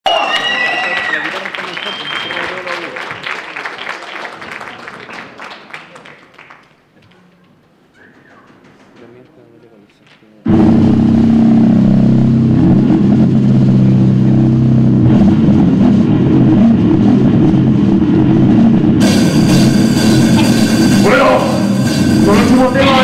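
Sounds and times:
distorted electric guitars: 10.5 - 23.0
drums: 10.5 - 23.0
loud cymbals: 19.0 - 23.0.

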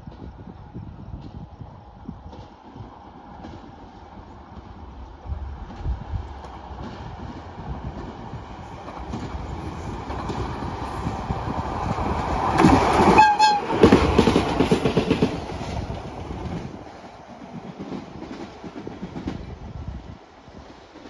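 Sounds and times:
train wheels clacking on rail joints: 0.0 - 19.7
locomotive whistle toot: 13.1 - 13.9.

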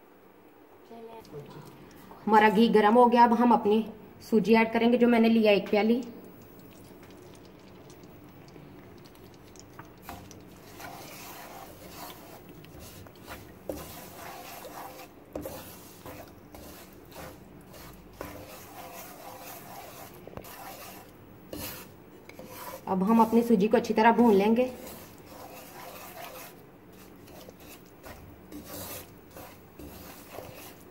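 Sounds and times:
spatula scraping semolina in pan: 9.9 - 30.9.

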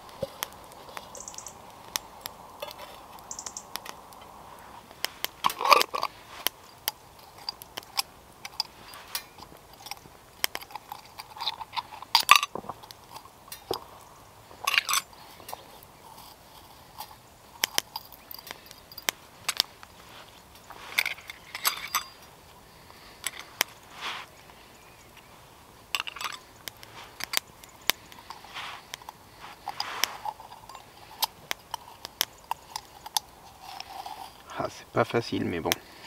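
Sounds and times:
metal and glass clinks: 14.6 - 15.6, 17.7 - 19.6, 20.9 - 22.4, 25.9 - 26.5
short rustles: 18.0 - 25.6, 28.0 - 30.9.

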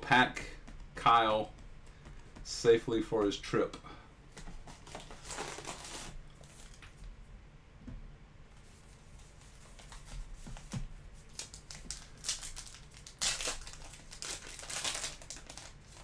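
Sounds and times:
card packs rustling: 4.4 - 7.0, 9.4 - 16.0
wrapper crinkling: 4.8 - 6.8, 11.3 - 16.0.

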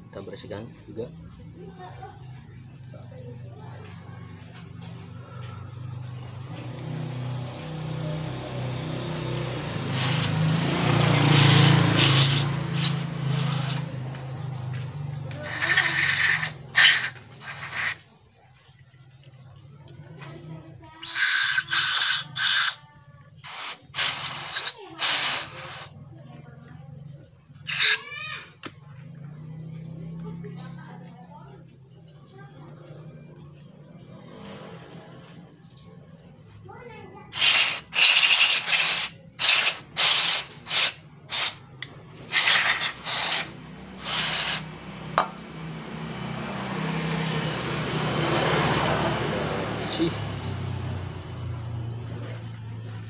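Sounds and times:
aerosol spray hissing bursts: 9.1 - 13.9, 21.0 - 22.8, 23.4 - 25.9, 27.7 - 28.0, 37.4 - 44.8.

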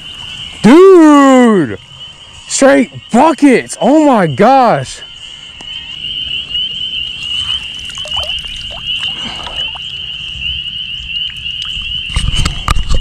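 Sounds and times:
frogs trilling: 0.0 - 13.0.

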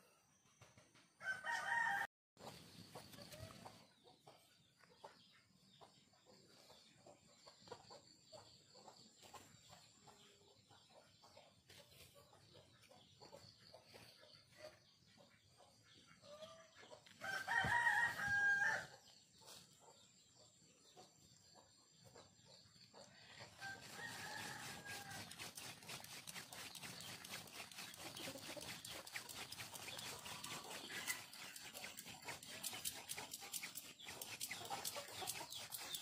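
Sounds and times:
rooster crowing: 1.2 - 2.1, 17.2 - 18.9, 23.6 - 25.3.

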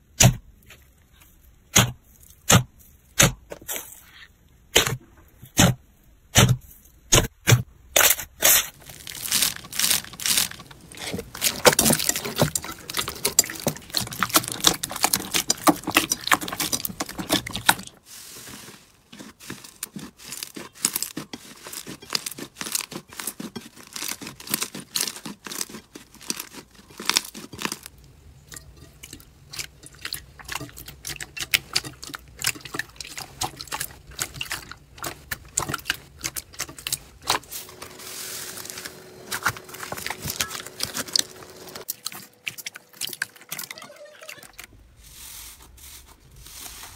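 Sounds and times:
slime squelching and popping: 8.5 - 18.0, 19.1 - 37.9, 38.6 - 44.6.

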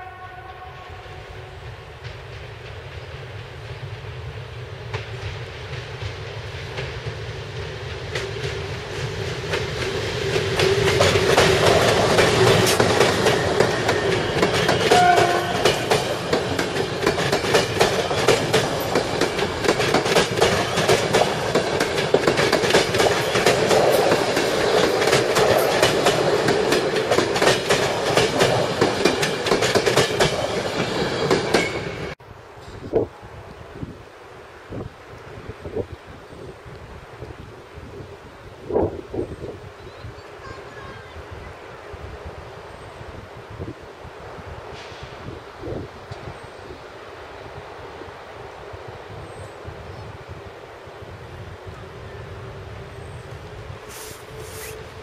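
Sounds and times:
passenger train rumbling past: 0.0 - 55.0
wheels clacking over rail joints: 4.8 - 32.9.

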